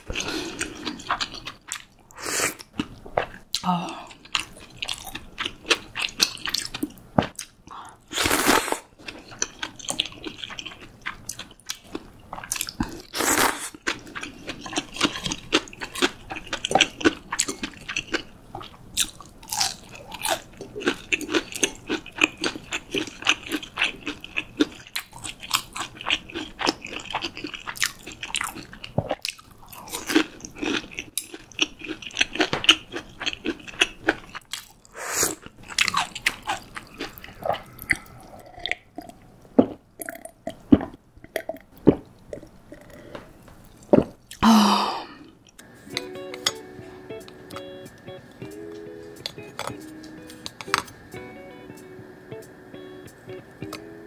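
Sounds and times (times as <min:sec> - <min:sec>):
crunching and chewing: 0:00.0 - 0:02.0, 0:02.6 - 0:44.4
slurping noodles: 0:08.1 - 0:08.9.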